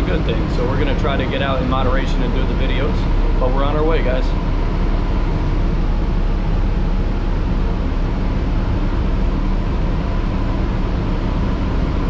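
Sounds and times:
bus engine rumble: 0:00.0 - 0:12.0
faint high hum: 0:00.0 - 0:12.0.

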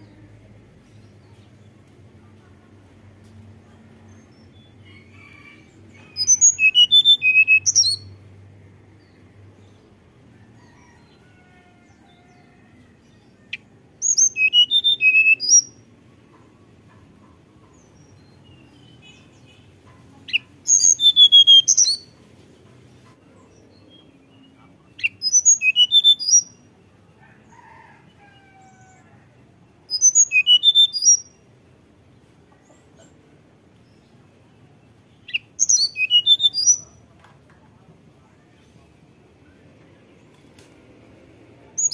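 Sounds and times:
bird whistling song: 0:06.1 - 0:08.1, 0:13.5 - 0:15.8, 0:20.3 - 0:22.1, 0:25.0 - 0:26.6, 0:29.9 - 0:31.4, 0:35.3 - 0:36.9.

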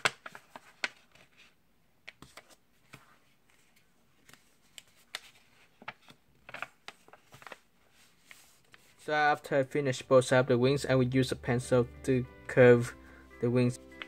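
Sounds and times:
paper being folded and creased: 0:00.0 - 0:01.6, 0:02.2 - 0:09.0.

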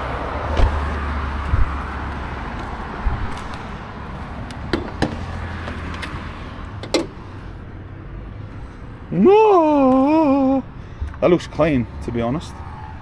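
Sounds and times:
bonnet latch clicks: 0:06.8 - 0:07.2.

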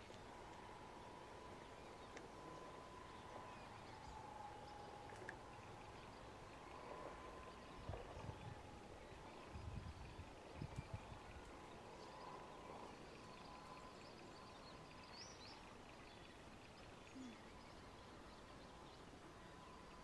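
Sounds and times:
faint outdoor hiss: 0:00.0 - 0:20.0
faint high chirp: 0:07.8 - 0:20.0.

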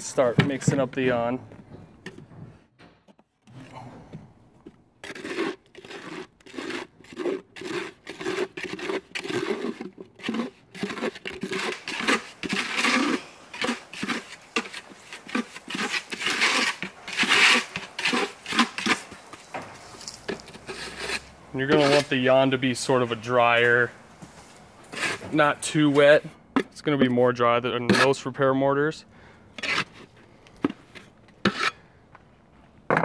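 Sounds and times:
mortar mixing gritty strokes: 0:05.0 - 0:28.3, 0:29.6 - 0:31.8.

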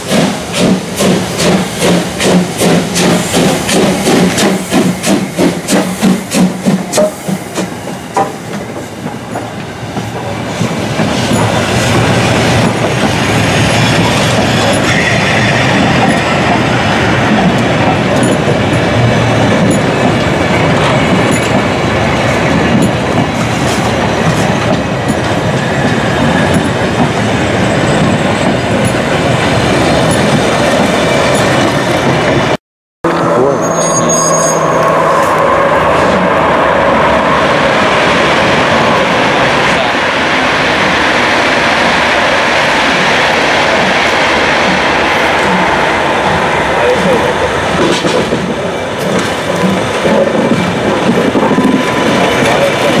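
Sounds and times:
steam locomotive exhaust beats: 0:00.0 - 0:21.7
train cars rumbling and clattering: 0:00.0 - 0:53.0.

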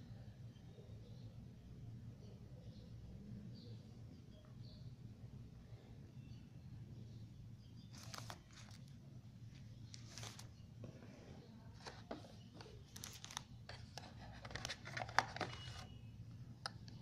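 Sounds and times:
cardboard packaging rustling: 0:07.9 - 0:08.9, 0:09.6 - 0:10.6, 0:11.8 - 0:15.9.

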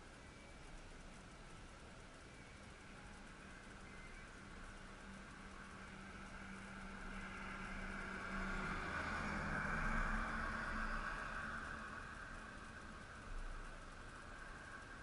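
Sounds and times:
van with caravan driving past: 0:03.4 - 0:15.0.

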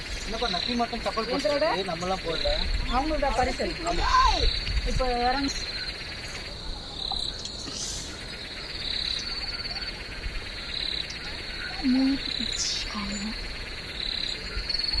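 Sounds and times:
insects chirring: 0:00.0 - 0:15.0.

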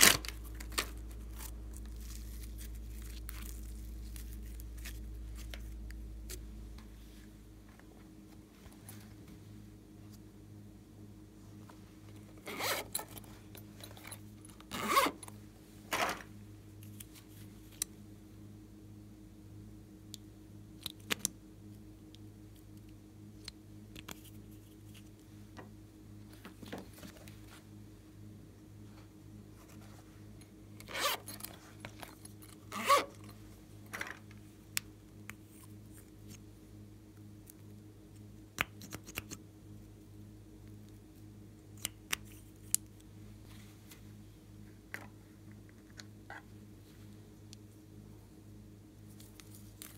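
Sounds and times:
faint steady hum: 0:00.0 - 0:49.9
zipper pulled: 0:12.4 - 0:15.3, 0:30.8 - 0:33.4.

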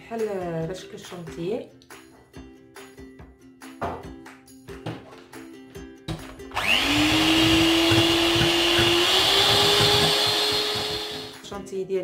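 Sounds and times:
background music: 0:00.0 - 0:12.0
electric hand mixer whine: 0:06.5 - 0:11.4.

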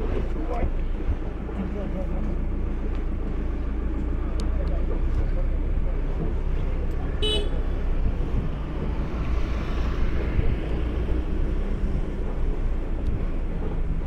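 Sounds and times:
vehicle rumbling: 0:00.0 - 0:14.0
wind on microphone: 0:07.9 - 0:14.0.

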